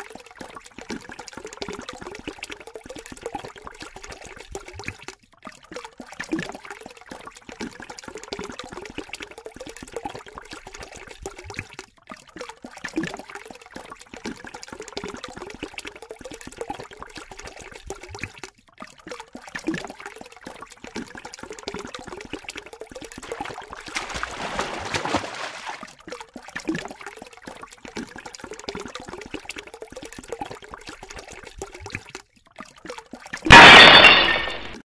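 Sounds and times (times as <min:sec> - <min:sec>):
water trickling from faucet: 0:00.0 - 0:34.8
cat pawing water splashes: 0:23.2 - 0:25.9.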